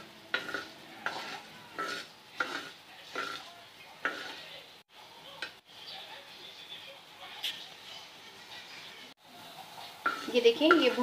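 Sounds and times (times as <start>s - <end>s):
spatula scraping spices on a pan: 0.0s - 4.6s, 9.5s - 11.0s.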